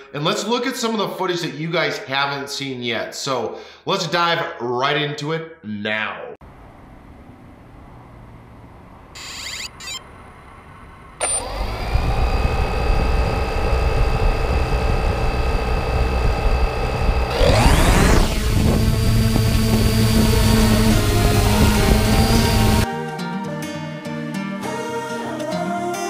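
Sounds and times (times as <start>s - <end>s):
drone propellers whining: 7.0s - 22.9s.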